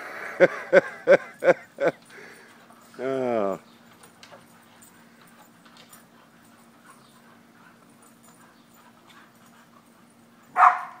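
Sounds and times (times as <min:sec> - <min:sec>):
faint ticks and rustles: 0:01.3 - 0:10.6
dog barking: 0:10.5 - 0:11.0.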